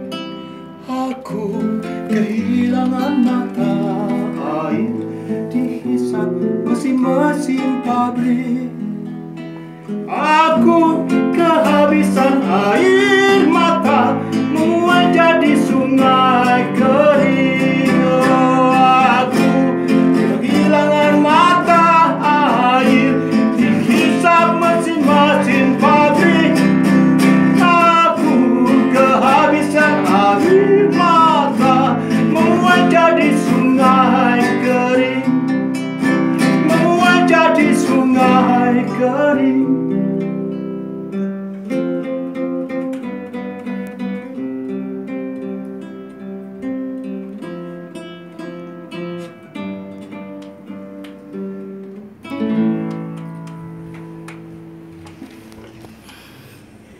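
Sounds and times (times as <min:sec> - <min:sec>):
acoustic guitar: 0:00.0 - 0:56.9
man singing: 0:00.8 - 0:09.1, 0:10.0 - 0:40.6.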